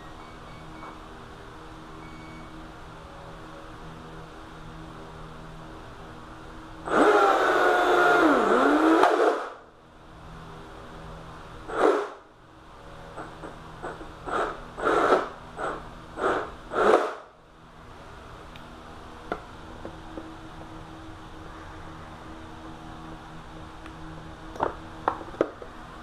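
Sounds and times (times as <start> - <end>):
electric motor whirring and whining: 6.9 - 9.6.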